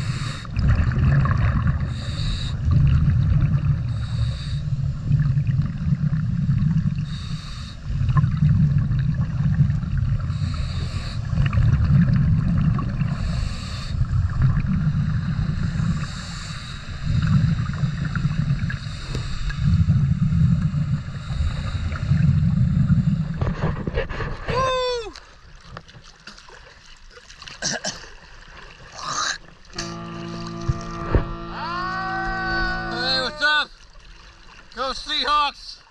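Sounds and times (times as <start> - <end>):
regulator inhalation hiss: 0.0 - 0.5, 1.9 - 2.7, 3.9 - 5.0, 7.0 - 7.9, 10.3 - 11.4, 13.1 - 14.1, 14.9 - 19.8, 20.9 - 23.4
exhaled bubbles rumbling underwater: 0.0 - 24.4.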